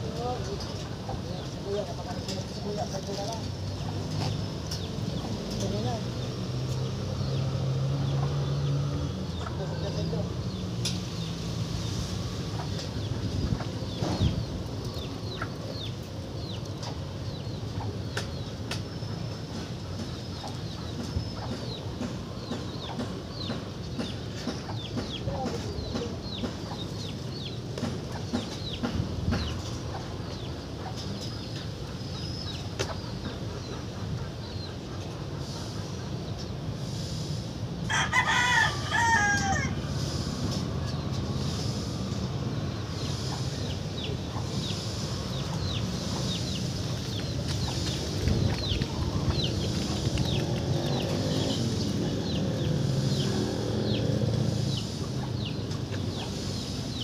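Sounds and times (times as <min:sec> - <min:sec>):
rooster crowing: 0:37.9 - 0:39.8.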